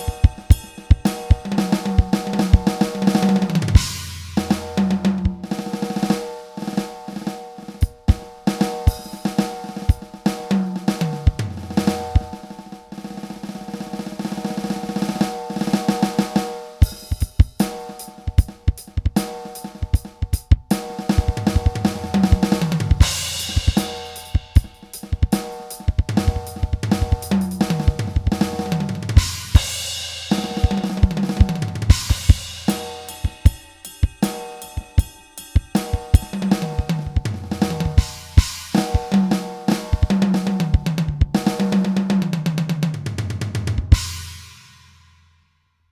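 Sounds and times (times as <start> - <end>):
cymbal crashes: 0.0 - 20.1, 20.8 - 40.1
drum kit groove: 0.0 - 45.0
tom fills: 19.6 - 41.8.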